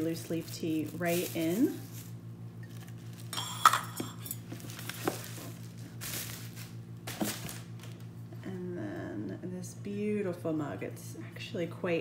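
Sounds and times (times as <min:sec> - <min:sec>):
low steady hum: 0:00.0 - 0:12.0
cardboard rustling and scraping: 0:00.3 - 0:03.3, 0:04.4 - 0:08.0.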